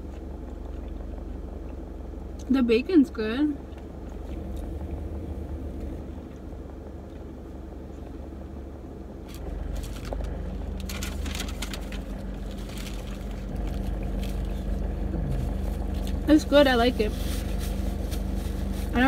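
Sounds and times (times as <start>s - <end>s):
crackly eating sounds: 0.0s - 2.5s, 3.5s - 5.2s, 9.2s - 16.4s
car engine idling: 0.0s - 19.0s.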